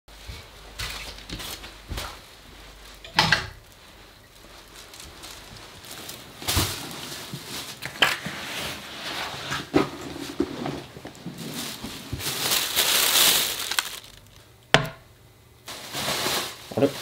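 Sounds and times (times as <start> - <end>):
plastic bag rustling: 3.6 - 14.6, 15.6 - 17.0.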